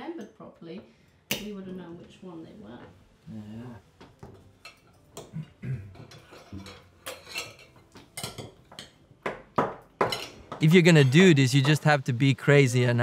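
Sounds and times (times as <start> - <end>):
cutlery and plates clinking: 4.2 - 9.1, 10.0 - 12.1.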